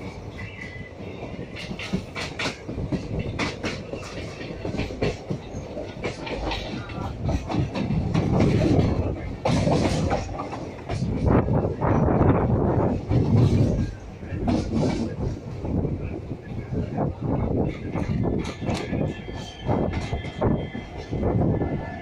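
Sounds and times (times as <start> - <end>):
wheels clacking over rail joints: 0.0 - 11.4, 17.6 - 21.3
train wheels rumbling: 0.0 - 22.0.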